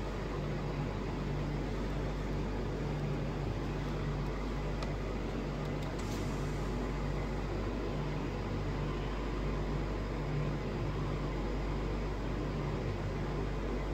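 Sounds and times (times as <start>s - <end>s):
car cabin engine hum: 0.0s - 8.2s.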